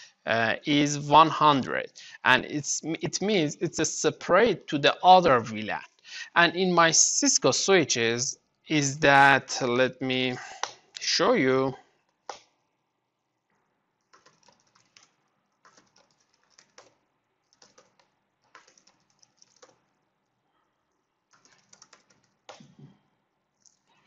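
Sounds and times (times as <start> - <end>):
typing on keyboard: 14.0 - 20.0, 20.9 - 22.8.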